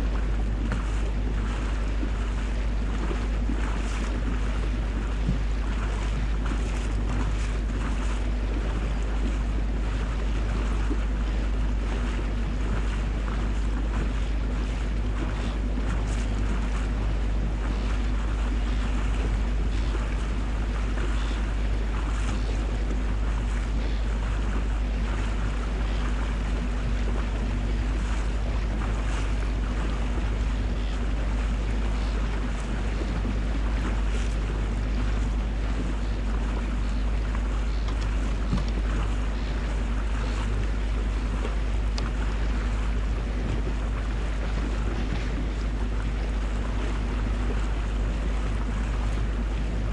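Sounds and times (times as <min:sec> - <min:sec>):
boat engine drone: 0:00.0 - 0:49.9
water rushing past hull: 0:00.0 - 0:49.9
wind buffeting microphone: 0:00.0 - 0:49.9.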